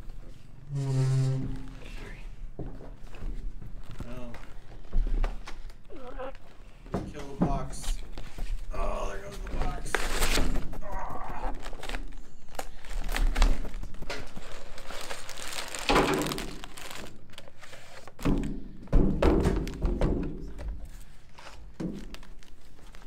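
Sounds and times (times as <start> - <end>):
plastic bags and paper crinkling: 3.2 - 6.6, 7.7 - 18.6, 19.5 - 23.0.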